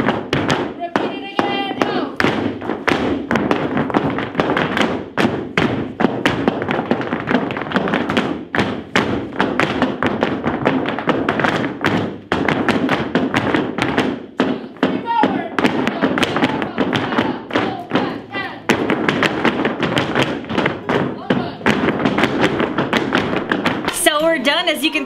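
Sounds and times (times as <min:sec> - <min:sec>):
heeled shoes stamping on floor: 0:00.0 - 0:25.0.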